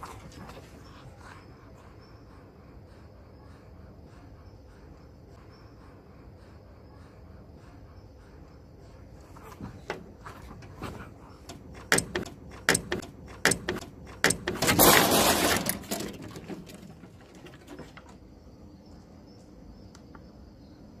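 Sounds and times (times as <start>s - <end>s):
knocks on wooden steps: 11.8s - 14.6s.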